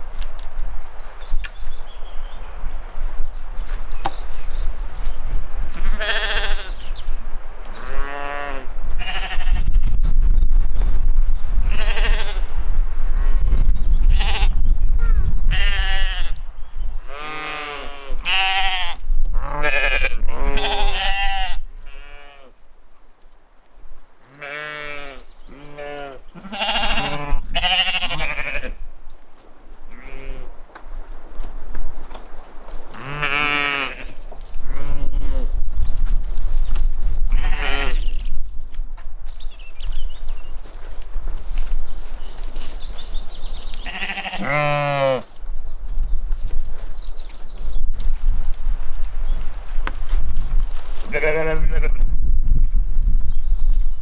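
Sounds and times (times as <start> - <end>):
sheep bleating: 5.8 - 6.8, 7.8 - 9.7, 17.1 - 22.5, 24.3 - 28.8, 33.0 - 34.1, 43.8 - 45.3, 51.1 - 52.0.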